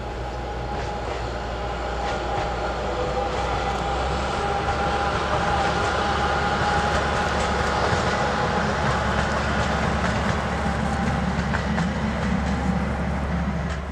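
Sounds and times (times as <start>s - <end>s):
diesel locomotive engine whining: 0.0s - 13.9s
wheels clicking over rail joints: 2.0s - 12.8s.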